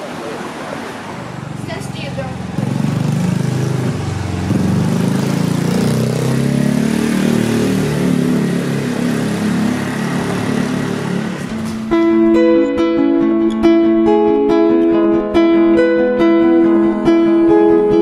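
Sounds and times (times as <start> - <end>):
motor scooter engine approaching: 0.0 - 12.9
acoustic guitar music: 0.0 - 18.0.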